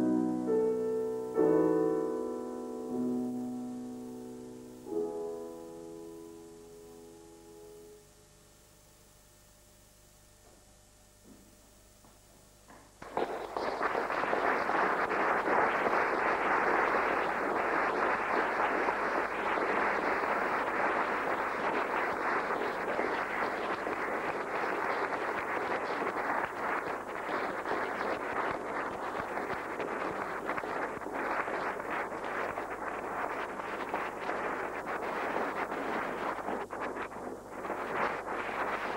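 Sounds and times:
audience applause: 13.0 - 36.4.

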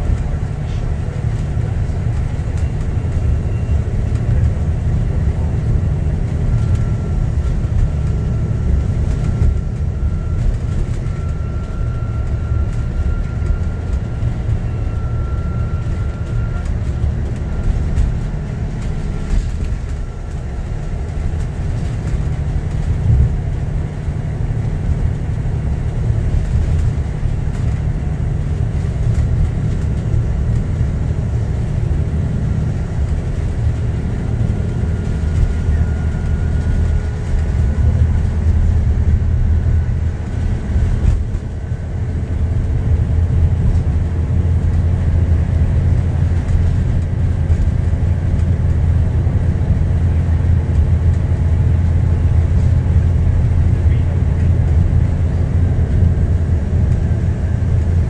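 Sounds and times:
bus diesel engine drone: 0.0 - 58.0
road noise: 0.0 - 58.0.

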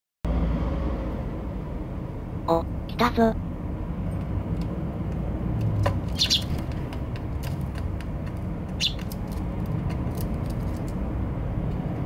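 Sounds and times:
sparrow chirps: 6.0 - 6.9, 8.6 - 9.4.

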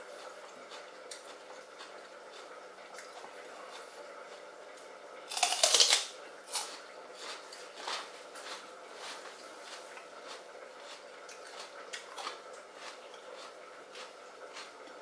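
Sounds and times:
chewing crunches: 0.1 - 4.5, 5.3 - 15.0
crisp celery crunch: 5.3 - 15.0.

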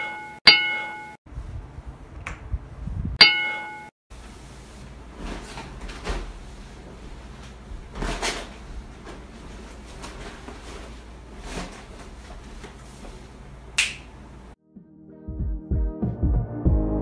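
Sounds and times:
rustling and knocks of packing: 5.1 - 13.3
sharp snap: 13.8 - 14.1.

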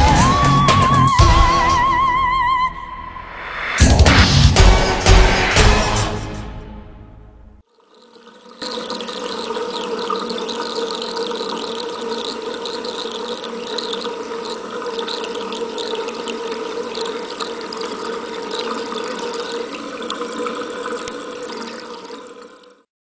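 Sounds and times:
tap water splashing on drain: 7.7 - 22.8.

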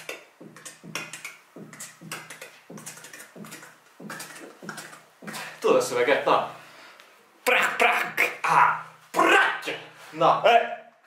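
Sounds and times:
percussive beat with low tone: 0.0 - 5.7.

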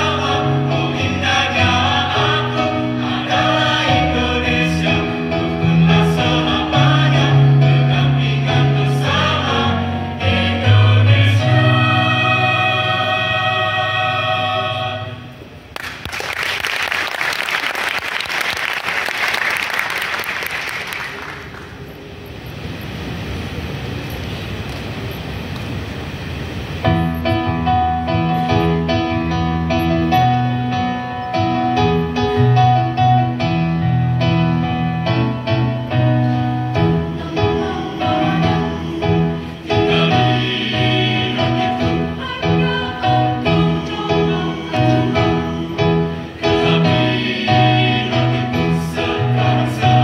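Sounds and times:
choir holding chord: 0.0 - 15.6, 34.5 - 50.0
audience applause: 15.8 - 21.8.

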